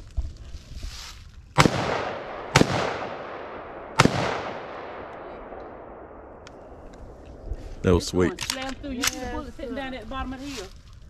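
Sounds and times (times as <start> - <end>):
rifle shots with long echo: 1.6 - 7.6.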